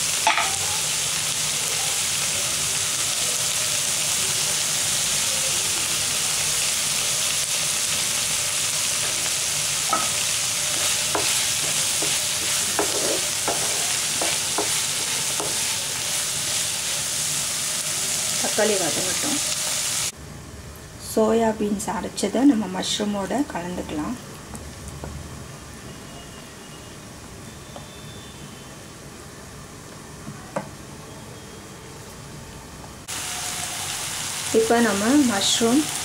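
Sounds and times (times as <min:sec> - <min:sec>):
vegetables sizzling in hot oil: 0:00.0 - 0:20.2, 0:21.1 - 0:25.0, 0:33.0 - 0:36.0
spatula scraping and tapping pan: 0:09.9 - 0:15.7.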